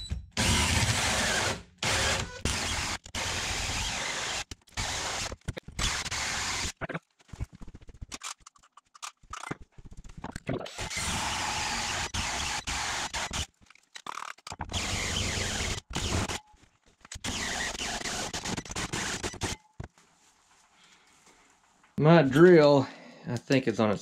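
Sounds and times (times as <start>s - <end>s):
drill with hole saw cutting wood: 0.4s - 6.8s, 10.7s - 13.5s, 14.7s - 16.4s, 17.2s - 19.6s.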